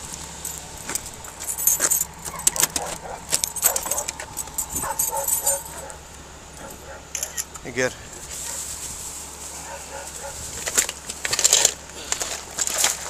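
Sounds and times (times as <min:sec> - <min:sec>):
clattering handling noise: 0:00.2 - 0:09.0.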